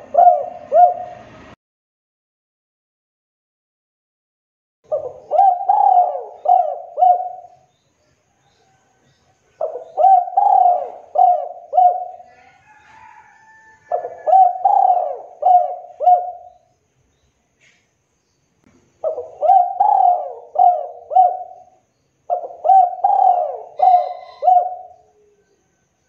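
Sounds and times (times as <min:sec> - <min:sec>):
dove cooing: 0:00.0 - 0:01.5, 0:04.9 - 0:07.7, 0:09.6 - 0:16.7, 0:19.0 - 0:25.5.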